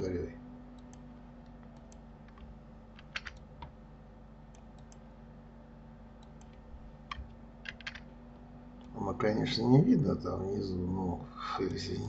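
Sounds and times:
faint low hum: 0:00.0 - 0:12.0
keyboard keys clicking: 0:00.8 - 0:03.8, 0:06.2 - 0:08.1.

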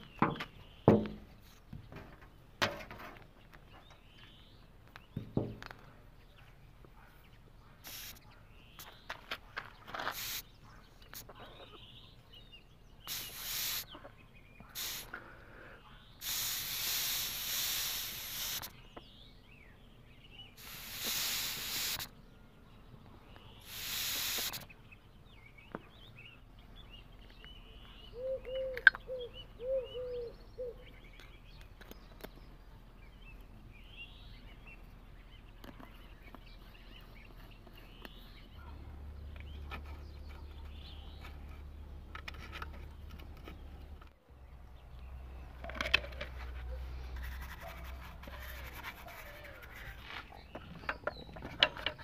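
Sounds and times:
bird chirping: 0:00.0 - 0:02.6, 0:03.2 - 0:52.0
hissing blasts of pressurised air: 0:07.8 - 0:08.2, 0:10.2 - 0:10.4, 0:13.1 - 0:13.9, 0:14.8 - 0:15.2, 0:16.2 - 0:18.7, 0:20.6 - 0:22.1, 0:23.6 - 0:24.7.

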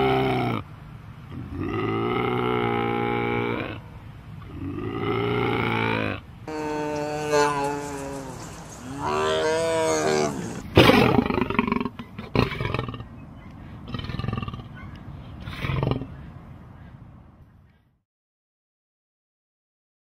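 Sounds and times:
lion roaring: 0:01.3 - 0:13.1, 0:15.4 - 0:16.2
tiger calling: 0:01.3 - 0:17.0.

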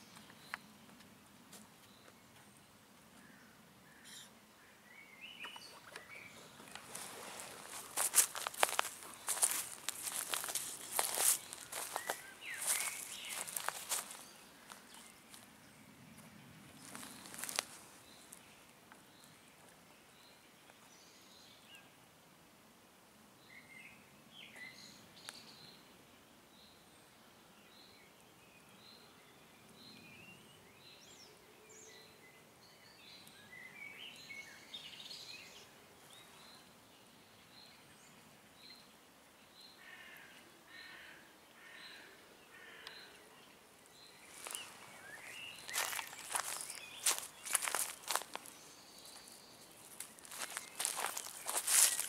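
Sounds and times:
birds chirping and trilling: 0:01.8 - 0:21.8, 0:27.7 - 0:52.0
rustling crunches: 0:06.6 - 0:15.4, 0:16.8 - 0:18.4, 0:44.3 - 0:52.0.

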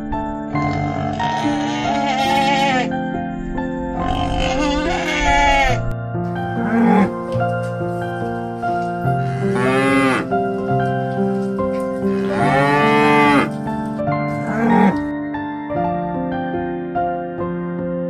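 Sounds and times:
background music: 0:00.0 - 0:18.0
water buffalo mooing: 0:00.6 - 0:02.9, 0:04.0 - 0:06.0, 0:06.6 - 0:07.2, 0:09.1 - 0:10.4, 0:12.0 - 0:13.6, 0:14.4 - 0:15.1.

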